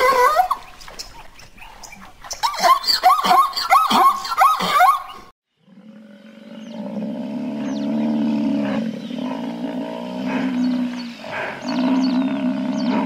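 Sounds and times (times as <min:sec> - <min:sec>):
small birds chirping: 0:00.5 - 0:13.0
buffalo lowing: 0:05.7 - 0:13.0.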